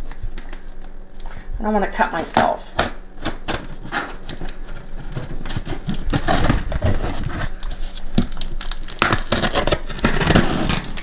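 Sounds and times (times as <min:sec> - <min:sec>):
knife slitting packing tape: 0:02.8 - 0:11.0.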